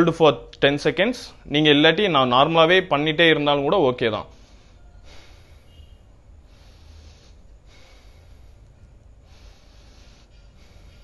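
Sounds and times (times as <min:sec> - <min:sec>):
man breathing deeply through nose: 0:04.3 - 0:11.0.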